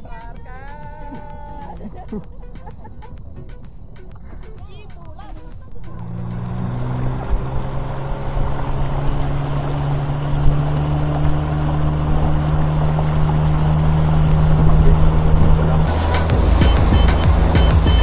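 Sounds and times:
outboard motor running: 0.0 - 18.0
water rushing along hull: 6.5 - 18.0.

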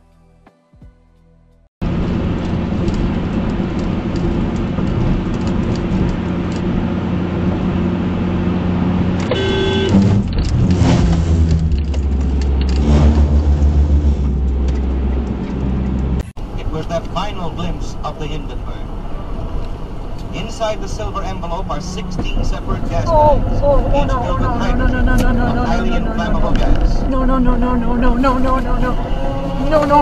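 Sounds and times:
pulsing low rumble: 1.8 - 9.2, 9.9 - 30.0
car road and engine noise: 1.8 - 30.0
brief beep: 9.4 - 9.9.

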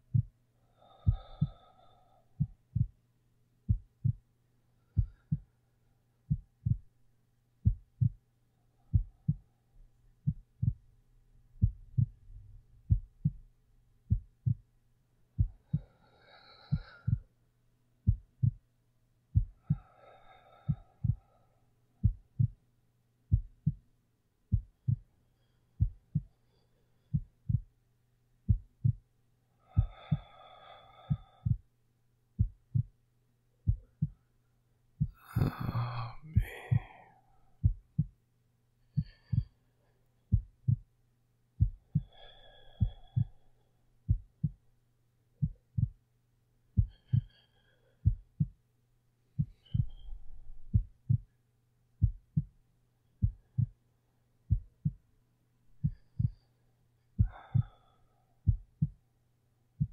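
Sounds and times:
heartbeat: 0.0 - 0.4, 1.0 - 1.7, 2.4 - 3.0, 3.6 - 4.3, 4.9 - 5.6, 6.3 - 7.0, 7.6 - 8.2, 8.8 - 14.7, 15.3 - 15.9, 16.7 - 17.3, 18.0 - 18.7, 19.3 - 20.0, 20.6 - 21.4, 22.0 - 22.6, 23.3 - 23.9, 24.5 - 25.1, 25.8 - 26.4, 27.1 - 27.8, 28.5 - 29.1, 29.8 - 30.3, 31.0 - 31.7, 32.3 - 33.0, 33.6 - 34.2, 35.0 - 37.0, 37.6 - 38.2, 38.9 - 39.6, 40.3 - 40.9, 41.6 - 44.7, 45.4 - 46.0, 46.8 - 47.4, 48.0 - 48.6, 49.4 - 51.4, 52.0 - 52.6, 53.2 - 53.8, 54.5 - 55.0, 55.7 - 56.5, 57.2 - 57.8, 58.4 - 59.0
low steady hum: 0.0 - 59.9
soft slow breaths: 0.0 - 59.9.

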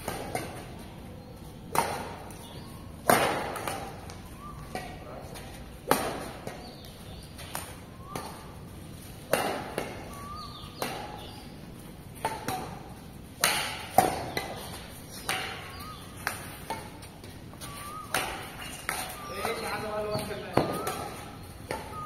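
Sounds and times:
badminton racket hitting shuttlecock: 9.2 - 10.0, 13.4 - 21.9
shoe squeaks: 15.6 - 22.0.

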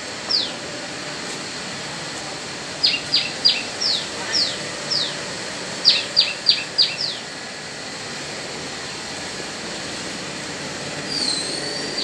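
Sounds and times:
forklift engine running: 0.0 - 12.0
bird chirping: 2.8 - 5.2, 5.8 - 7.2.

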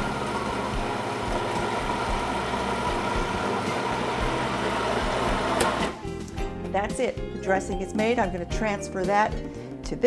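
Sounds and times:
food processor motor running: 0.0 - 6.0.

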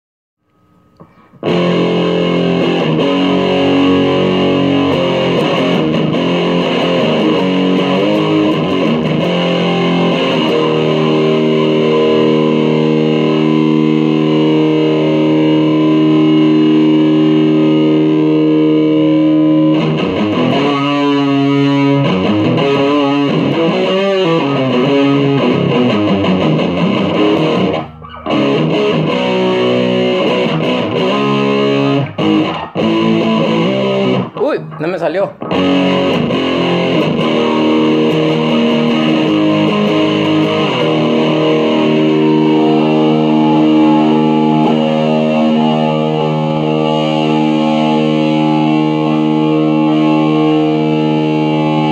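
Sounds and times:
distorted electric guitar: 0.4 - 51.9.

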